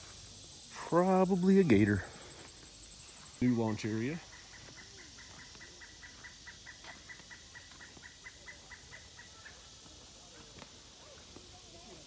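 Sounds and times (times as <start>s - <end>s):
animal clucking call: 4.2s - 9.7s.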